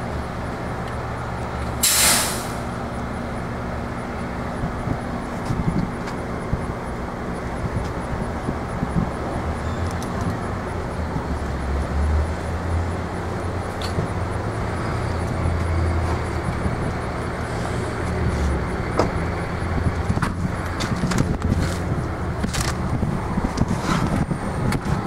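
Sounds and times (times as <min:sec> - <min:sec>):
diesel engine idling: 0:00.0 - 0:25.0.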